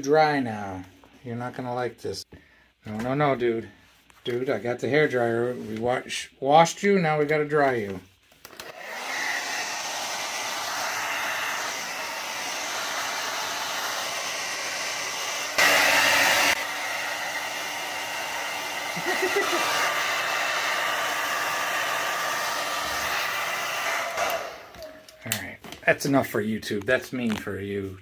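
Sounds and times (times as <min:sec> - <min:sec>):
hair dryer blowing: 0:08.4 - 0:25.2.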